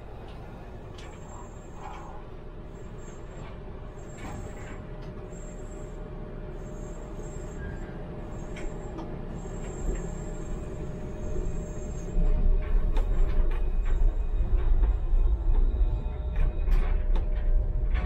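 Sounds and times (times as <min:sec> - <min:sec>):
tram wheels rumbling on rails: 0:00.0 - 0:18.0
faint high whistle: 0:06.8 - 0:12.3.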